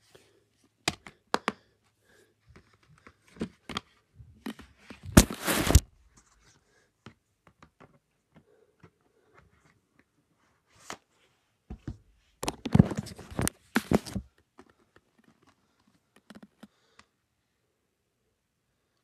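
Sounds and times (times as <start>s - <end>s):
loud rustling and scraping: 5.1s - 5.8s
small handling clicks and knocks: 11.7s - 17.1s.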